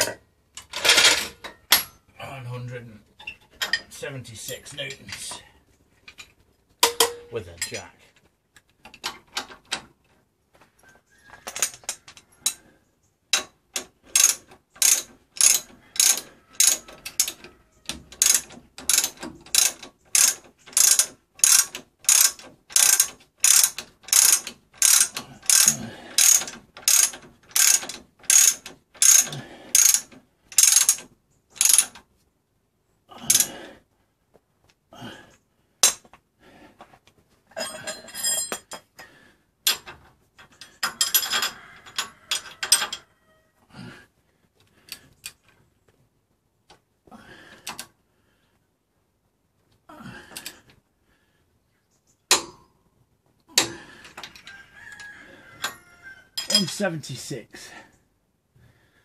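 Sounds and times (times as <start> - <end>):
socket ratchet clicking: 14.1 - 17.4, 18.1 - 31.0.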